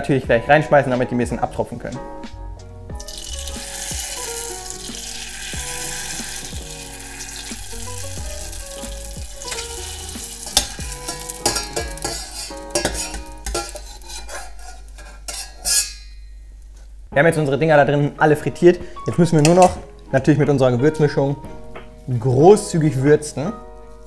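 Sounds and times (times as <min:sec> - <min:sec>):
frying in hot oil: 0:03.0 - 0:16.1.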